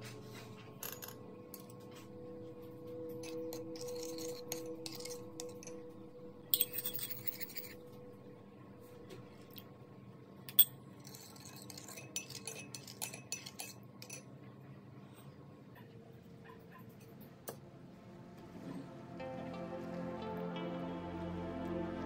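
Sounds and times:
spoon clinking against ceramic bowl: 6.6 - 7.7, 10.5 - 14.3.

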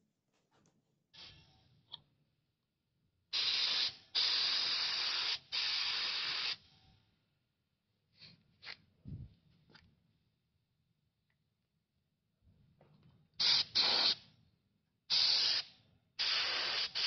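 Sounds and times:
spray gun hissing air: 3.3 - 6.6, 13.4 - 14.2, 15.1 - 17.0.

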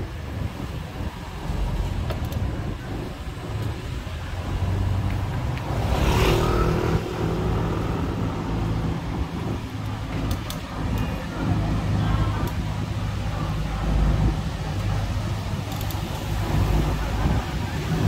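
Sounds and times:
vehicle engines running: 0.0 - 18.0
vehicle passing close: 4.2 - 10.9.

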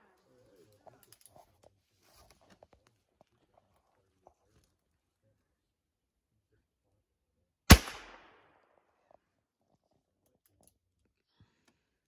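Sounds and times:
revolver shot with echo: 7.7 - 8.4.

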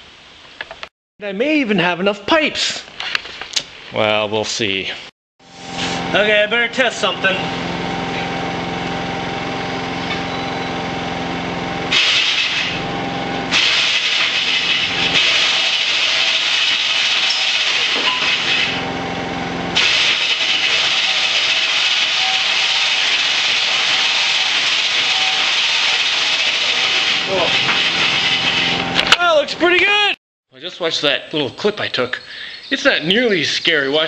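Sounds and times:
motor mechanism humming: 5.5 - 30.2
loud harsh rasping: 5.6 - 30.1.

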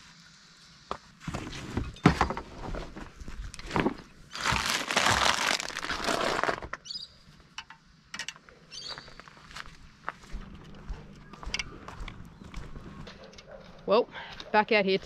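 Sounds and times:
plastic packet crinkling: 4.3 - 6.8.

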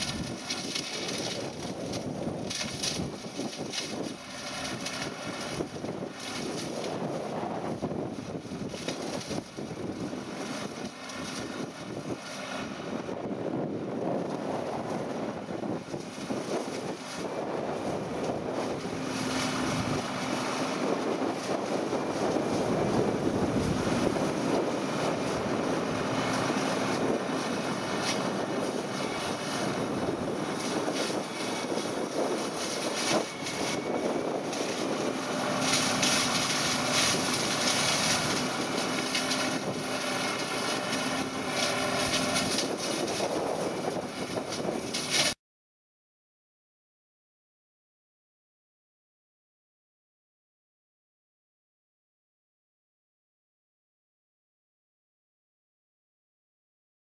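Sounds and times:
tractor diesel engine drone: 0.0 - 45.4.

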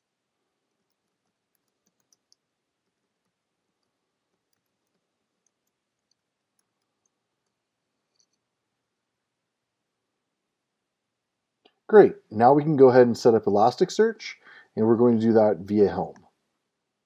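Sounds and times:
keyboard keys typing: 0.7 - 8.4.

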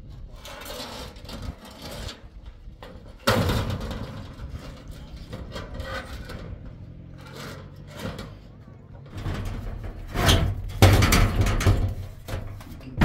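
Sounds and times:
handling noises: 2.3 - 13.0
loud bang or clatter: 9.2 - 12.0.

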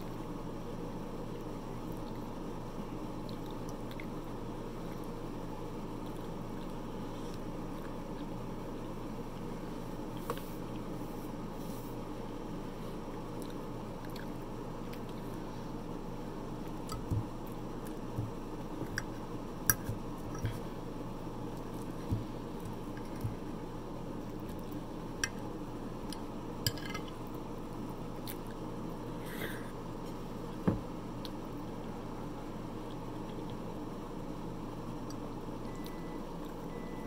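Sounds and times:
steady low hum: 0.0 - 37.0
squishy chewing: 3.1 - 5.2.

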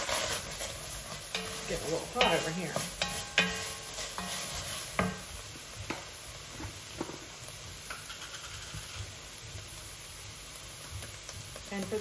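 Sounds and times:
utensils knocking and clinking: 1.3 - 4.4
pot clanking on cooktop: 1.3 - 5.3.

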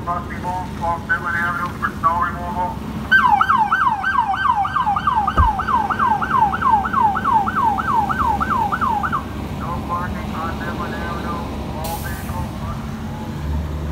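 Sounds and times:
police siren yelping: 1.1 - 9.4.

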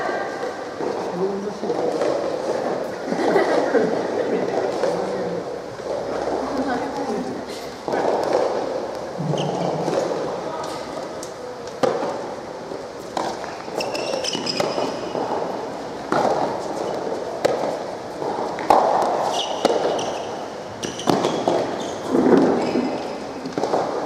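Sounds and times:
rackets hitting ball: 1.7 - 2.9, 7.8 - 24.0
shoes squeaking on court: 7.0 - 11.0, 13.0 - 15.5, 18.5 - 24.0
ball bouncing on court: 7.9 - 10.8, 13.0 - 15.5, 16.1 - 24.0.

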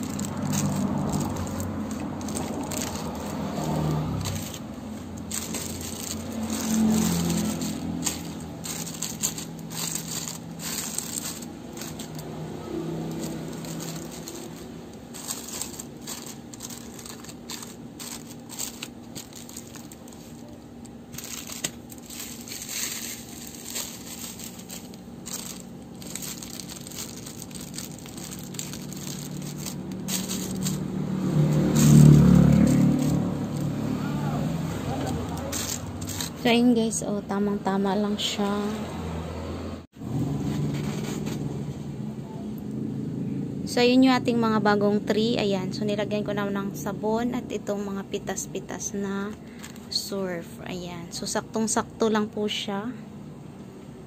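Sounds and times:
small clicks and crackles: 0.0 - 12.3, 13.1 - 30.8
plastic sachets crinkling: 0.0 - 33.8, 34.9 - 36.5, 49.3 - 50.0.

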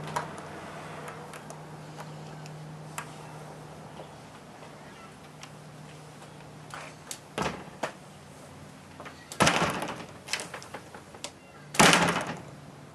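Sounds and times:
door banging shut: 7.4 - 7.8, 9.3 - 10.9, 11.7 - 12.5
door closing thud with rattle: 7.4 - 7.9, 9.3 - 11.2, 11.8 - 12.5.

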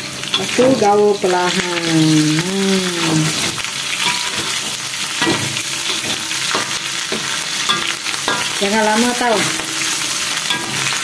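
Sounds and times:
food sizzling in hot oil: 0.0 - 11.0
metal spatula scraping a pan: 3.1 - 11.0.

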